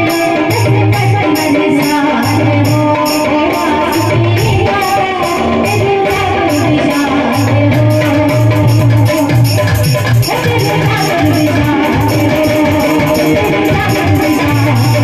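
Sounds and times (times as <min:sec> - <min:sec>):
jingling percussion beat: 0:00.0 - 0:15.0
woman singing into microphone: 0:00.0 - 0:15.0
low drum: 0:04.0 - 0:15.0.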